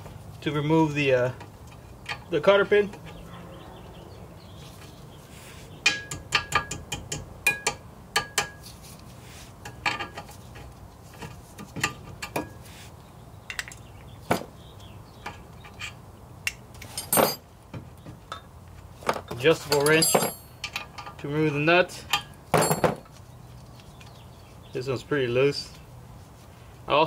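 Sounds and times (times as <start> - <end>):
metal cutters clicking and clinking: 16.5 - 17.4, 19.3 - 23.0.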